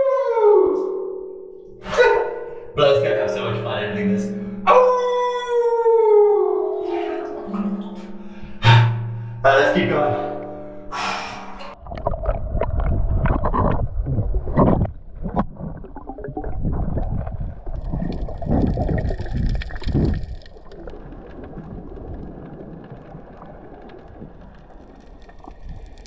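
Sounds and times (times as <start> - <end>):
water rushing underwater: 11.4 - 26.0.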